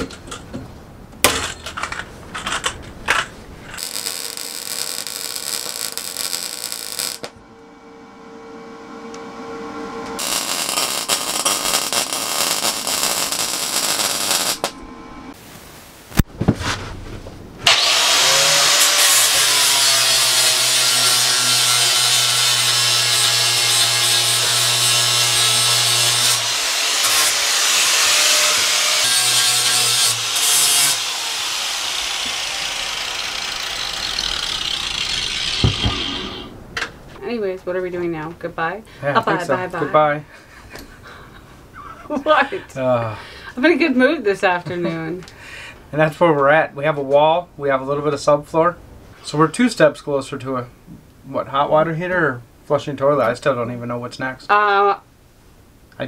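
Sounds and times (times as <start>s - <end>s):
welding crackling hiss: 3.7s - 7.4s, 10.2s - 16.3s, 17.6s - 36.6s
angle grinder grinding metal: 3.8s - 15.2s, 17.6s - 36.5s.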